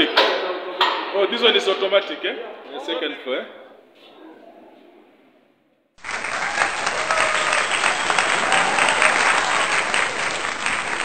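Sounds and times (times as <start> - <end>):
faint voices: 6.1 - 11.0.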